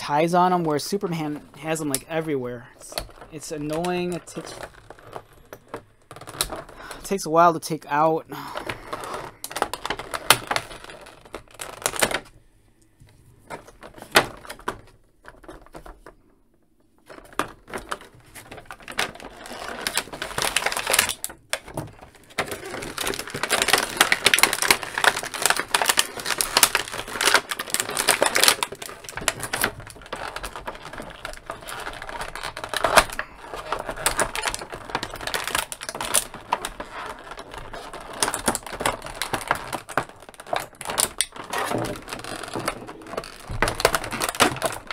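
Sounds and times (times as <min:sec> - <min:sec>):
plastic packaging crinkling: 0:00.0 - 0:07.3, 0:08.3 - 0:12.4, 0:13.4 - 0:16.2, 0:17.0 - 0:44.9.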